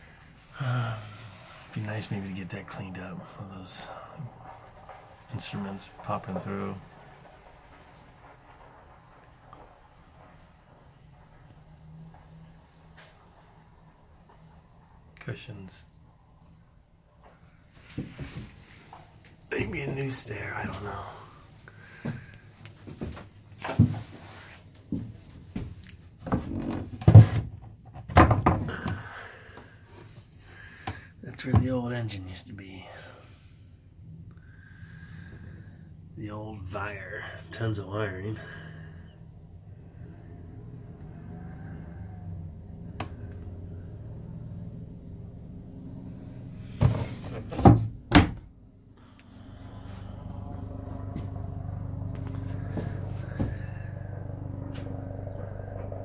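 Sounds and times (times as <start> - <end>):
steady low hum: 0.0 - 27.8, 28.4 - 56.0
hollow knocks of wooden cover: 26.2 - 29.0, 46.8 - 48.4
wooden knocks and scrapes: 46.7 - 48.3.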